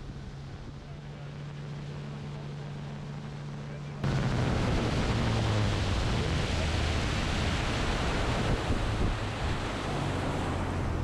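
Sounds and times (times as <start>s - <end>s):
low hum: 0.0s - 11.0s
water noise: 0.0s - 11.0s
wind on microphone: 4.0s - 11.0s.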